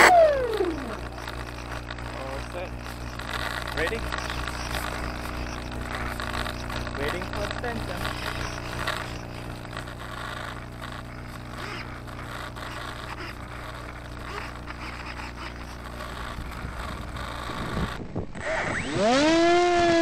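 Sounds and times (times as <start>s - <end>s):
electric motor whine: 0.0s - 20.0s
steady low hum: 0.0s - 20.0s
rustling and scraping handling: 0.6s - 18.0s
wind noise: 15.9s - 18.8s.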